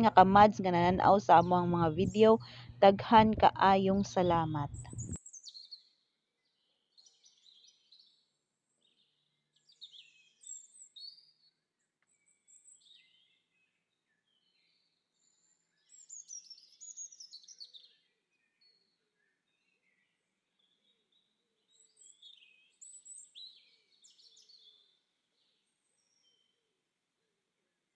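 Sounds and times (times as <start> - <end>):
faint bird chirps and trills: 4.2 - 26.6.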